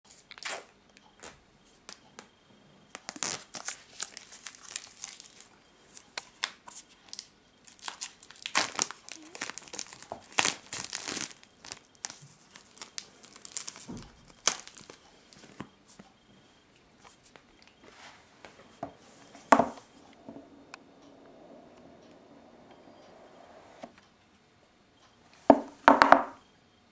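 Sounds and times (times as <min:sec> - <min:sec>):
plastic shrink-wrap crinkling: 0:02.9 - 0:05.6, 0:06.2 - 0:15.6.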